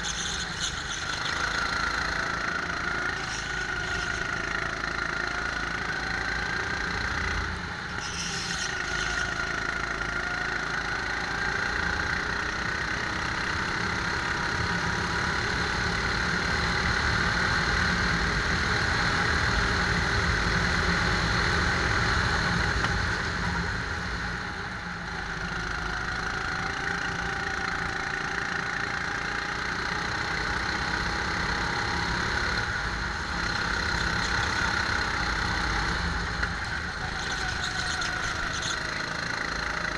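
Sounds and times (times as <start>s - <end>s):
go-kart engine running: 0.0s - 39.9s.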